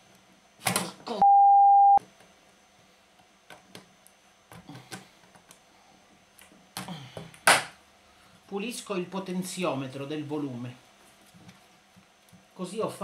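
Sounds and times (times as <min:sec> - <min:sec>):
censor bleep: 0:01.2 - 0:02.0.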